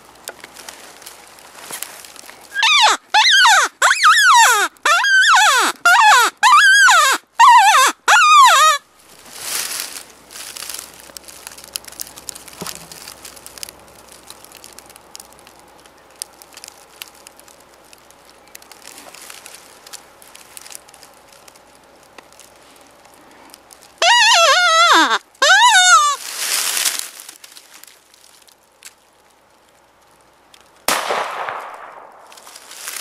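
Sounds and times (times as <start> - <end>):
faint rustling and crinkling: 0.0 - 6.4, 8.5 - 30.8, 32.2 - 33.0
wavering predator call cries: 2.5 - 8.8, 24.0 - 26.2.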